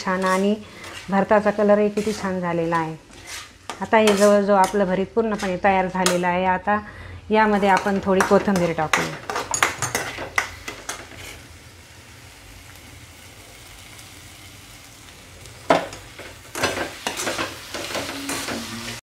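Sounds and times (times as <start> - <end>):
spatula scraping a metal pan: 0.0 - 6.2
faint frying sizzle: 0.0 - 19.0.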